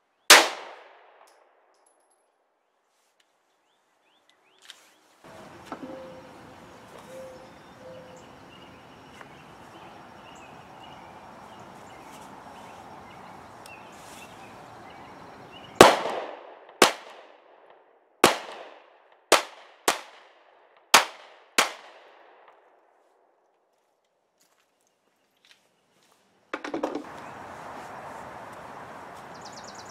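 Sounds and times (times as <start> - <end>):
faint outdoor background: 0.0 - 29.9
pistol shots: 0.3 - 1.4, 15.8 - 22.6.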